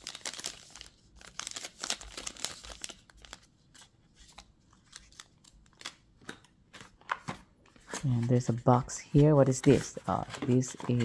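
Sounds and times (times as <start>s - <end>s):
plastic bags crinkling: 0.0s - 3.4s.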